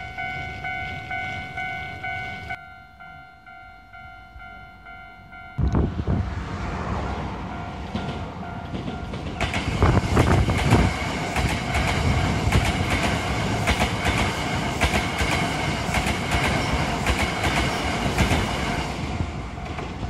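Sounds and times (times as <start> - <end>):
train wheels clattering over rail joints: 7.8 - 20.0.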